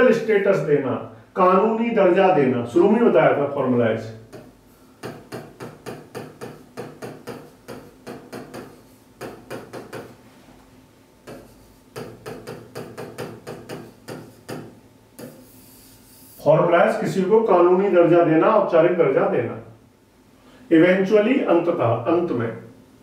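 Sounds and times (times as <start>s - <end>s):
pen tapping on screen: 4.3s - 10.2s, 11.2s - 15.5s.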